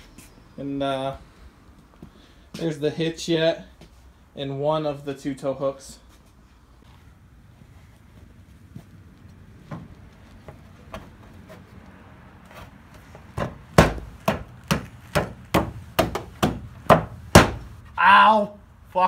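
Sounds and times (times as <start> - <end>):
sharp knocks on metal tow hook: 13.4 - 17.7.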